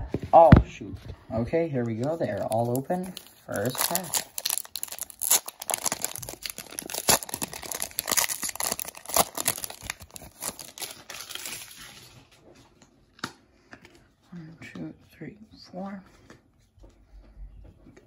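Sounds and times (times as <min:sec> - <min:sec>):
foil wrapper crinkling: 0:01.9 - 0:12.4.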